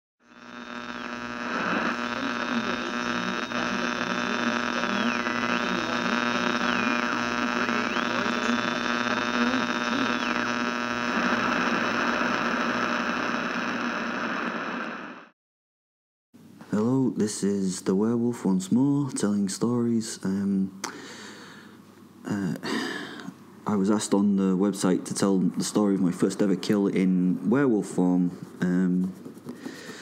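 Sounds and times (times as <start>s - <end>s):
dense droning hum: 0.3s - 14.1s
high tone dipping in pitch: 4.9s - 10.8s.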